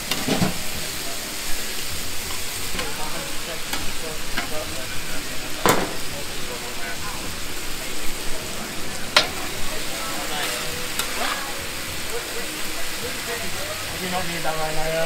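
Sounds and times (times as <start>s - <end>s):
chicken sizzling on a griddle: 0.0s - 15.0s.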